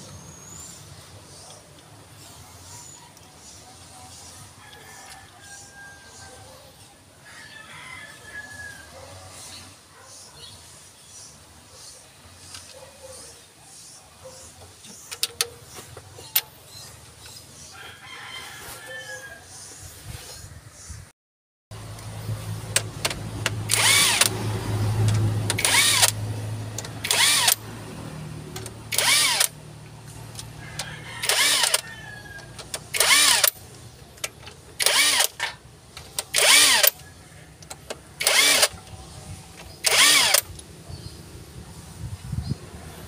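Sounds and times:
impact driver bursts: 23.7 - 24.3, 25.5 - 26.2, 27.0 - 27.6, 28.9 - 29.6, 31.2 - 31.8, 32.7 - 33.6, 34.8 - 37.0, 38.2 - 38.8, 39.8 - 40.5.

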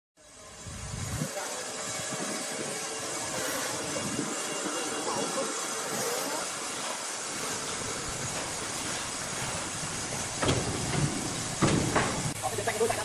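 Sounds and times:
steady mechanical hiss: 0.2 - 13.0
heavy knocks: 10.0 - 12.4.

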